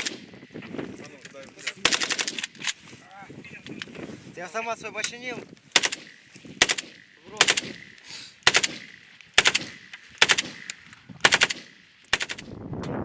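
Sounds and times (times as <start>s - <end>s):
automatic gunfire bursts: 0.0s - 0.3s, 1.8s - 2.6s, 5.7s - 12.4s
gunshot echo: 5.8s - 12.4s.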